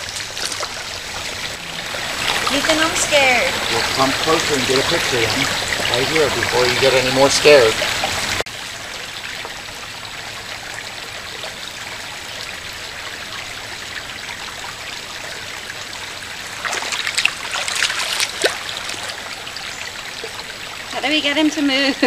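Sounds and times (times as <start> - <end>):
splashing steps through water: 0.0 - 6.8, 16.6 - 19.4
shallow water trickling: 0.0 - 22.0.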